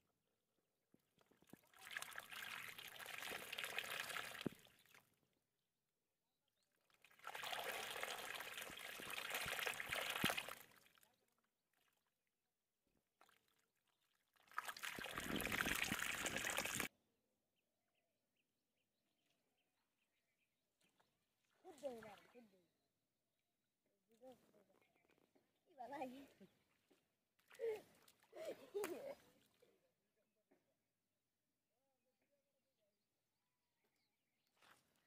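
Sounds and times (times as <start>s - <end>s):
muddy water pouring into pit: 1.2s - 5.0s, 6.9s - 12.0s, 13.4s - 16.9s.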